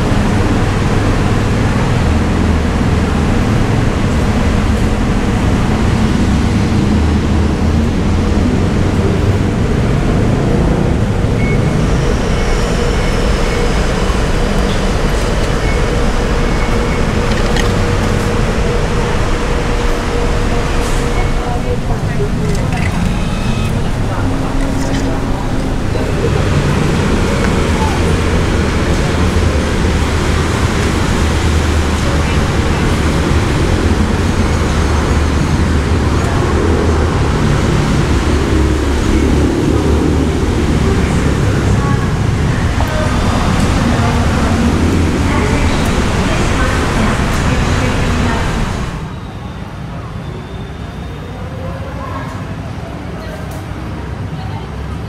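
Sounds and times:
constant hum: 0.0s - 49.1s
road traffic rumble: 0.0s - 55.0s
vending machine humming: 11.0s - 34.3s.

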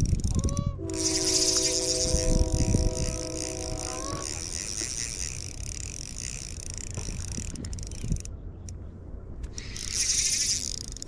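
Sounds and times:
wind rumbling on microphone: 0.0s - 11.0s
chord of held tones: 0.6s - 4.5s.

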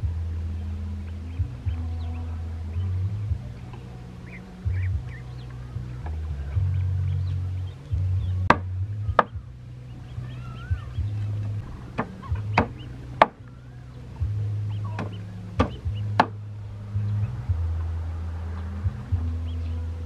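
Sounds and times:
cleaver chopping on wooden board: 8.5s - 9.4s.

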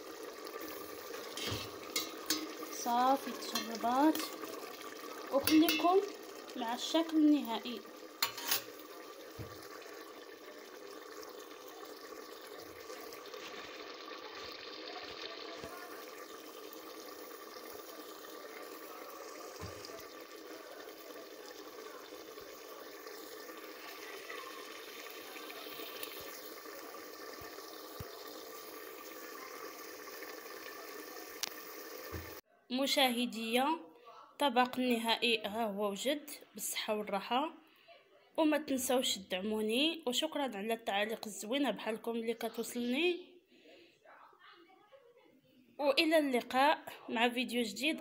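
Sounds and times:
stew bubbling in a pot: 0.0s - 32.4s.

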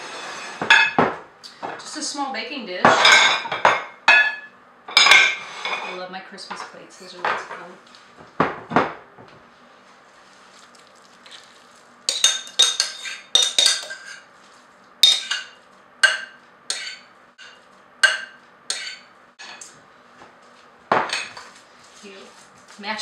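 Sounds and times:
utensil scraping ceramic bowl: 12.1s - 14.3s.

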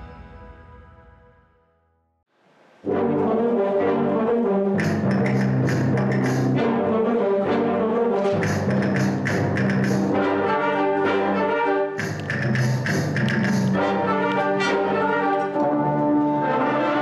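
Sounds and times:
wind band brass chords: 2.8s - 17.0s
sharp percussion strikes: 4.8s - 6.5s, 8.4s - 10.2s, 12.0s - 13.8s.

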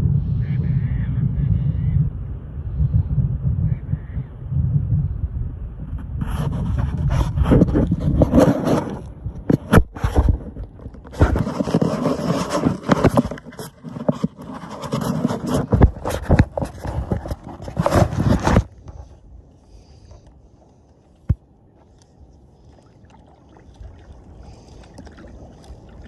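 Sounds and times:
phone microphone scraping and crackling: 5.8s - 22.2s.

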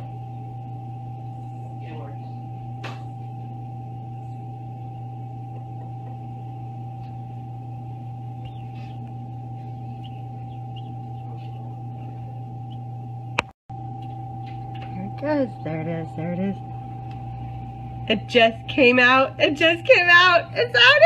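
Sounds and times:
incubator humming and whining: 0.0s - 21.0s
chick peeping: 8.4s - 12.8s.

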